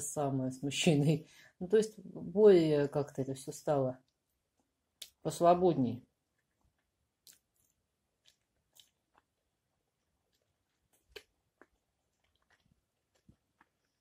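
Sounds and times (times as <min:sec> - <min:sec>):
chewing fried potatoes: 0:06.3 - 0:14.0.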